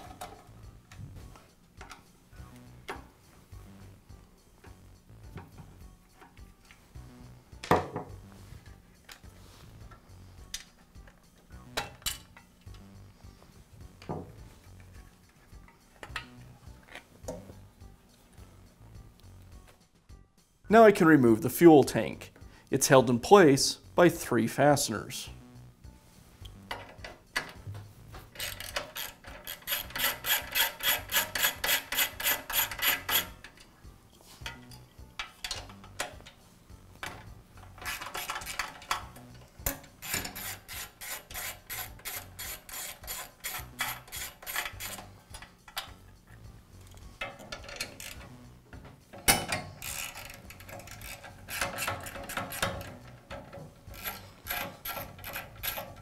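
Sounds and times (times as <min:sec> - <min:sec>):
ratchet wrench clicking rapidly: 0:28.3 - 0:33.4, 0:37.7 - 0:45.9, 0:46.9 - 0:48.4, 0:49.7 - 0:56.0.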